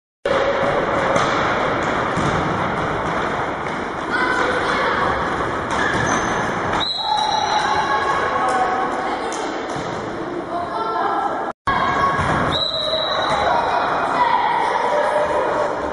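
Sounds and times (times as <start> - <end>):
children shouting: 7.0 - 9.2, 12.9 - 15.9.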